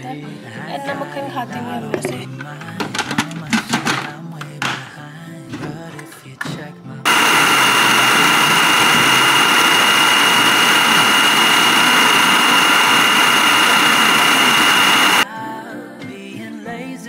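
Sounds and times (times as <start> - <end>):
food processor motor whining: 7.1 - 15.2.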